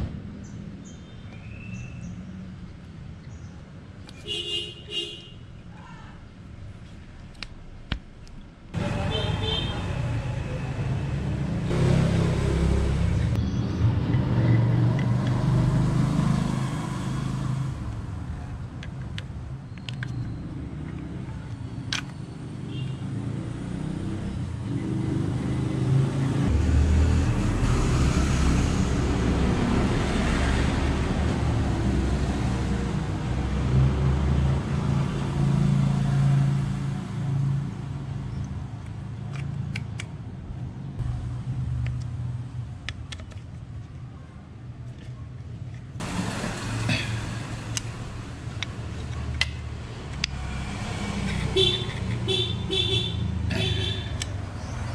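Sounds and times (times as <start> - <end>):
road noise: 0.0 - 54.9
vehicle engine revving: 10.0 - 18.0.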